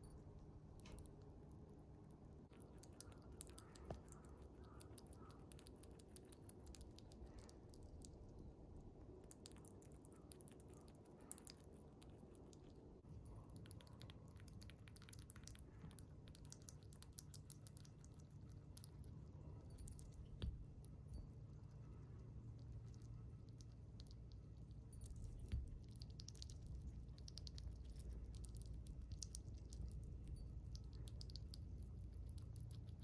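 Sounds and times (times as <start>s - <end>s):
chipmunk chewing and licking: 0.0s - 33.0s.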